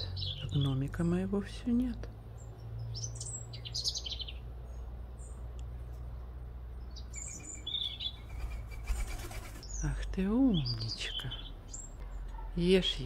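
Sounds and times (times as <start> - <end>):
songbirds chirping and trilling: 0.0 - 13.0
pigeon wings clattering: 8.2 - 9.6.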